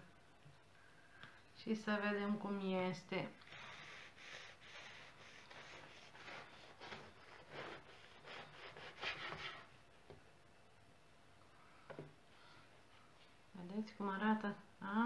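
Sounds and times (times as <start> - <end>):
bread knife sawing through bread: 3.5 - 9.7.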